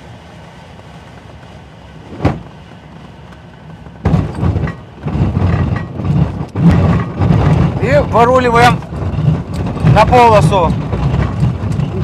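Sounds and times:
single thump: 0:02.1 - 0:02.5
wheel rolling over grass: 0:02.1 - 0:12.0.

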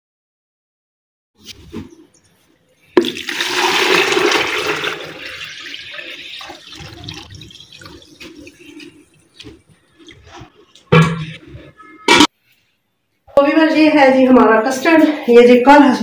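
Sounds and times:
liquid splashing into plastic jug: 0:03.0 - 0:10.2.

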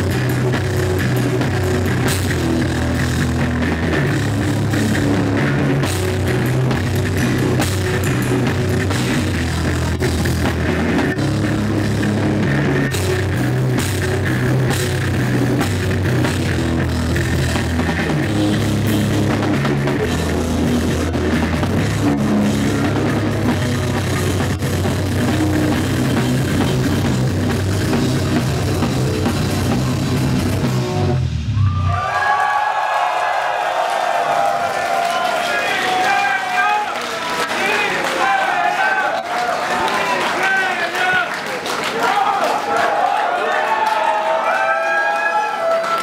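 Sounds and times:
fast drumming: 0:00.0 - 0:31.2
heavy rock band playing live: 0:00.0 - 0:31.5.

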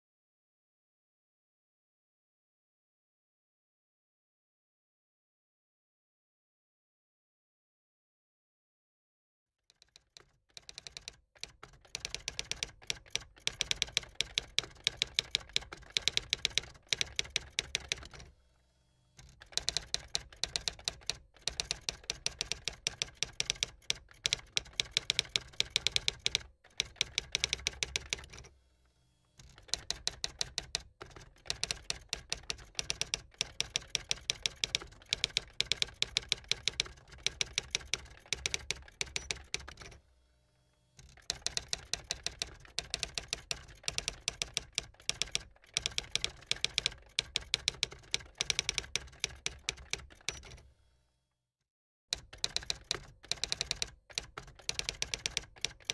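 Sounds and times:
typewriter key clacks: 0:41.1 - 0:50.6, 0:52.2 - 0:55.9.

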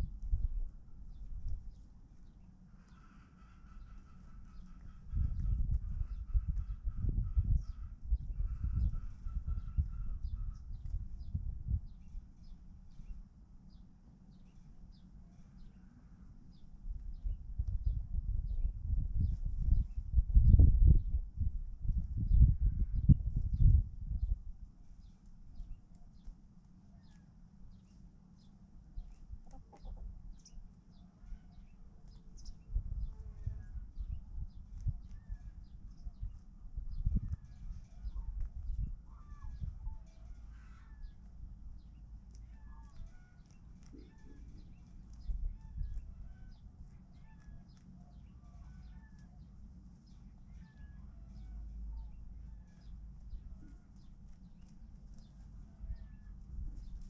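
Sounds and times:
low rumble: 0:00.0 - 0:02.1, 0:03.7 - 0:13.8, 0:15.7 - 0:25.9, 0:31.6 - 0:57.0
chickens clucking: 0:29.1 - 0:30.2.

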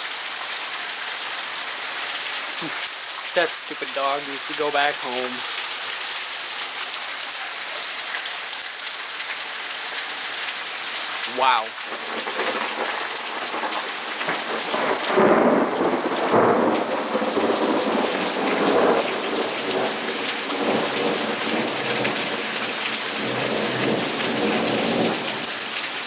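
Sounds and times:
steady rain falling: 0:00.0 - 0:26.0
thunder rumbling: 0:11.8 - 0:22.5.

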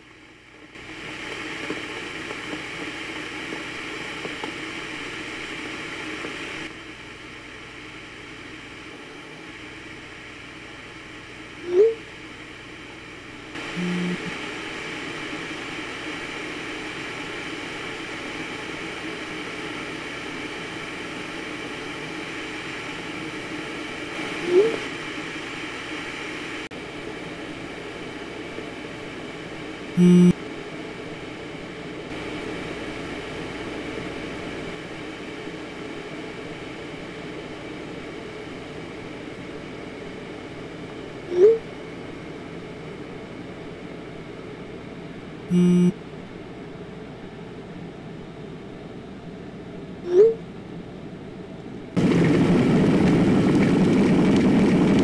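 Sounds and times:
low room hum: 0:00.0 - 0:55.0
phone buzz: 0:13.6 - 0:14.3, 0:30.0 - 0:30.4, 0:45.5 - 0:46.0
rising message blips: 0:13.7 - 0:14.3, 0:30.0 - 0:30.3, 0:45.5 - 0:45.9.

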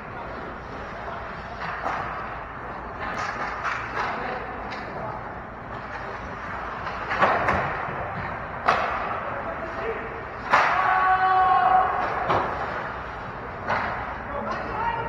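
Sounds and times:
sticks clacking on puck: 0:02.9 - 0:05.0, 0:05.7 - 0:12.9, 0:13.6 - 0:14.8.

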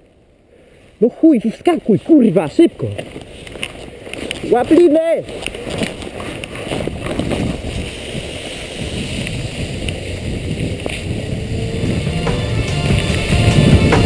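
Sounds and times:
skis sliding over snow: 0:00.1 - 0:14.0
wind on microphone: 0:05.6 - 0:14.0
faint whine: 0:11.3 - 0:14.0.

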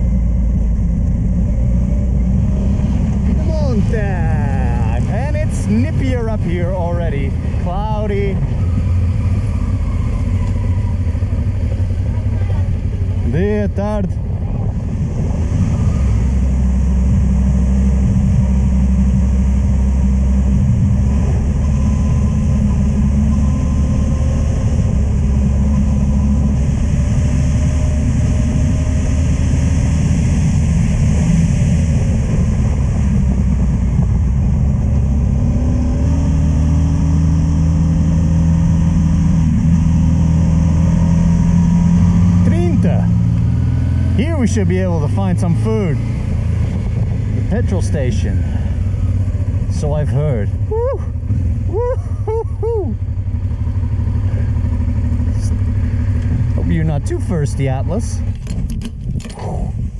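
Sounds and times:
motorcycle engine running: 0:00.0 - 0:59.9
wind noise on microphone: 0:14.0 - 0:36.8, 0:46.0 - 0:47.7, 0:57.9 - 0:59.9.

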